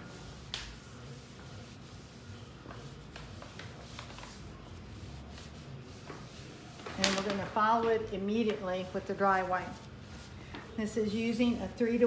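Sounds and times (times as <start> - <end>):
damp cloth rubbing metal panel: 0.0 - 12.0.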